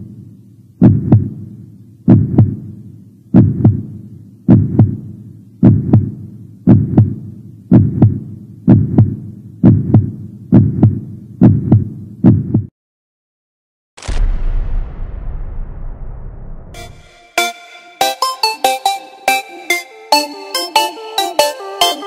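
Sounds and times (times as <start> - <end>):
heartbeat thumps: 0.8 - 12.7.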